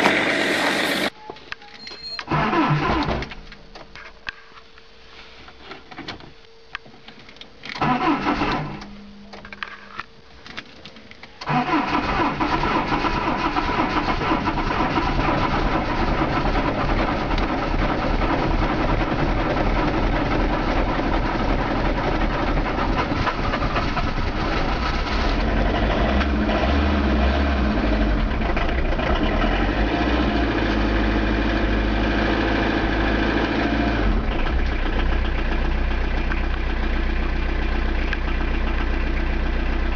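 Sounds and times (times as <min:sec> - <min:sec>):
diesel engine cranking and running: 0:02.3 - 0:03.4, 0:07.7 - 0:08.9, 0:11.4 - 0:39.9.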